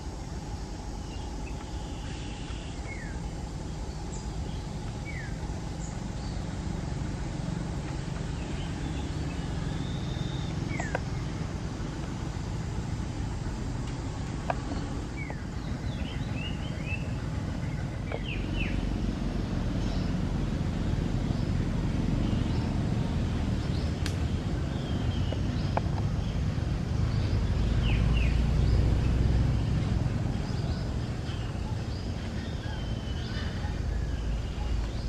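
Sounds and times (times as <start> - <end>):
high chirping calls: 8.2 - 11.4.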